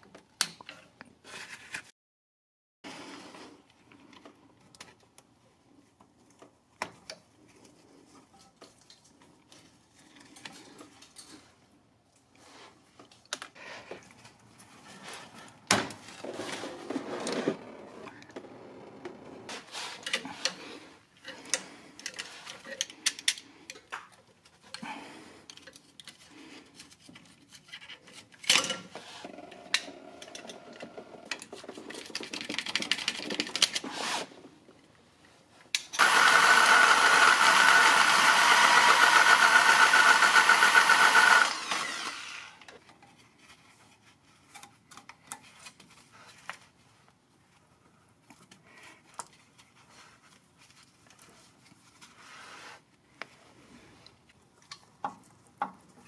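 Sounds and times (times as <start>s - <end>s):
small motor running: 36.0s - 42.6s.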